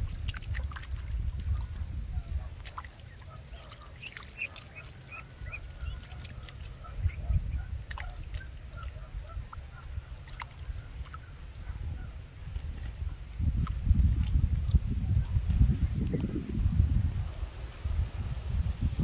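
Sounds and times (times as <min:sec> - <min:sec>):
duckling peeping: 0:01.4 - 0:13.0.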